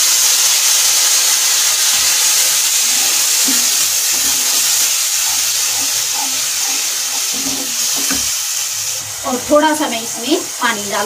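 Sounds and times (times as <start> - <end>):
tomato puree sizzling in oil: 0.0 - 11.0
wooden spatula stirring: 2.9 - 8.4.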